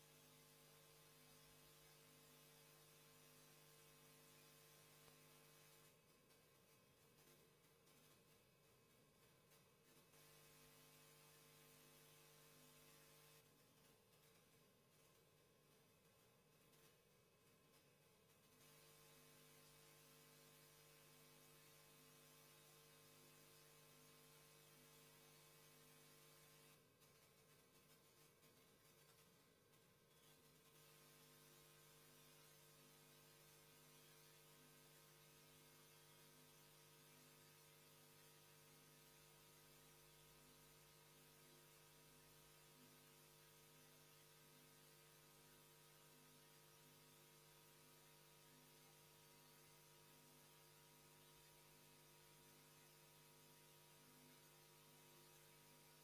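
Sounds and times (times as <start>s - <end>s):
faint mains hum: 0.0s - 56.0s
low hiss: 0.0s - 56.0s.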